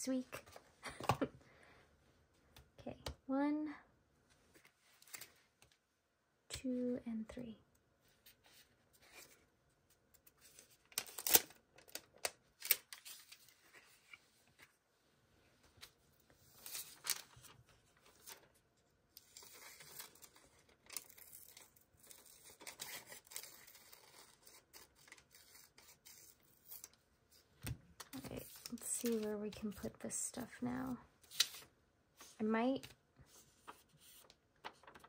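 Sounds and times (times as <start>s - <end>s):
paper rustling and tearing: 10.4s - 12.0s, 19.2s - 27.0s, 33.3s - 35.0s.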